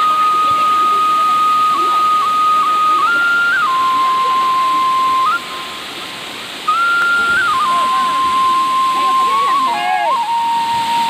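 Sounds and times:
whistle-like melodic tone: 0.0s - 5.9s, 6.7s - 11.0s
waterfall rushing: 0.0s - 11.0s.

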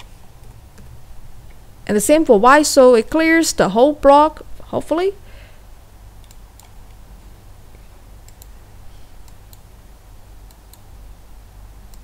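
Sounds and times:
faint low hum: 0.0s - 12.0s
computer mouse clicking: 6.2s - 7.0s, 8.2s - 8.5s, 9.2s - 9.7s, 10.4s - 10.9s.

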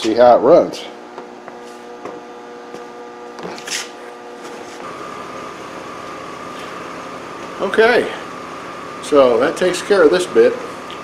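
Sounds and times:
electrical hum: 0.0s - 11.0s
car engine idling: 4.8s - 11.0s.

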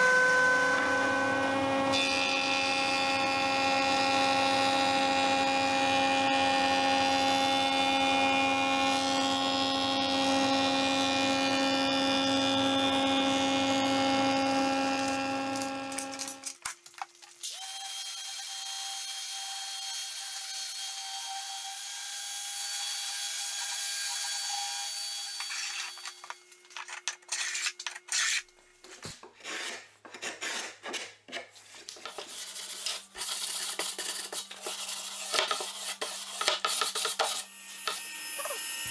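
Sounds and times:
woodworking machine whine: 0.0s - 16.4s, 37.3s - 38.9s
sanding block scrubbing wood: 32.1s - 37.5s
orbital sander humming: 37.0s - 38.9s.

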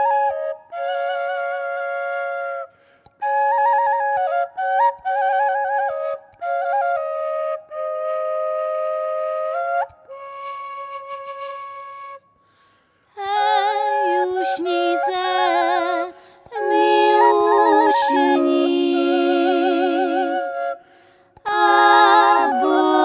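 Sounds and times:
double flute with drone: 0.0s - 12.4s, 13.2s - 23.0s
women singing a lullaby: 13.2s - 20.5s, 21.4s - 23.0s.

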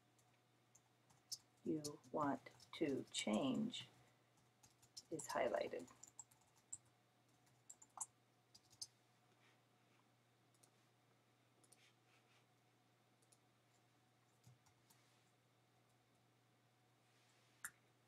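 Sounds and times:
computer mouse clicks: 4.6s - 8.9s, 10.5s - 10.7s.

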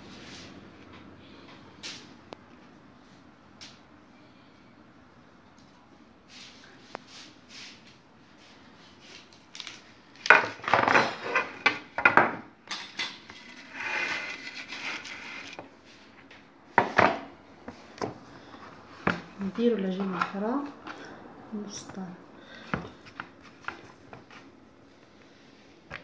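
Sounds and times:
baking tray and utensils clattering: 10.2s - 15.7s
soft scraping: 13.4s - 16.2s.

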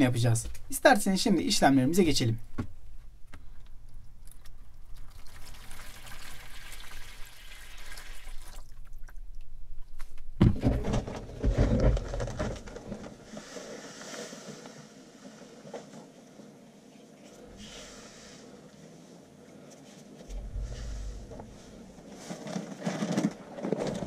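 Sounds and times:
water pouring into plastic tub: 4.2s - 9.2s
knocks and bumps of handling: 10.0s - 13.5s, 20.3s - 24.0s
bag rustling: 20.3s - 24.0s.

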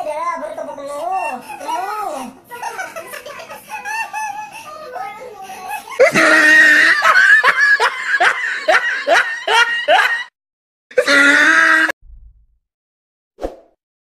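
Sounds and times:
man laughing hard: 6.0s - 10.3s.

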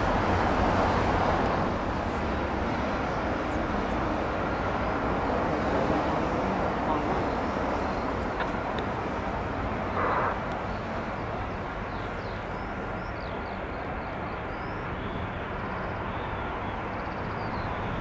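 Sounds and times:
jet engines running: 0.0s - 14.5s
distant traffic rumble: 0.0s - 18.0s
small birds chirping: 9.9s - 18.0s.

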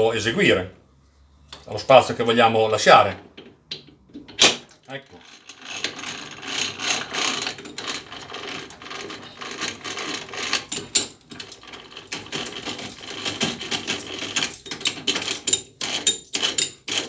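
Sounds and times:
lathe chuck clicking and rattling: 3.4s - 17.0s.

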